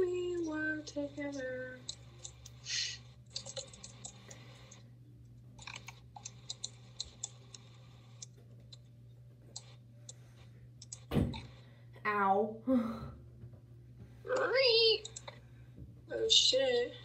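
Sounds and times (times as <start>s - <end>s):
steady low hum: 0.0s - 17.0s
faint clicks and taps: 5.6s - 8.9s, 13.4s - 15.9s.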